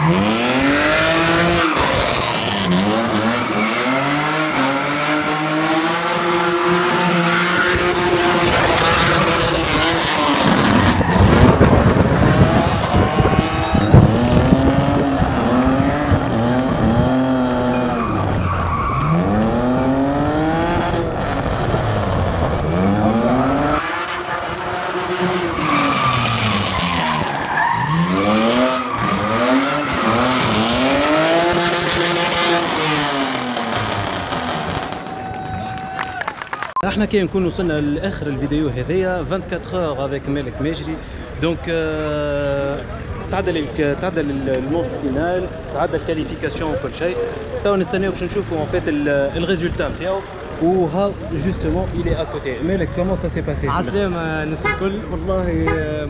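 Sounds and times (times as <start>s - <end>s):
car engine revving hard: 0.0s - 35.1s.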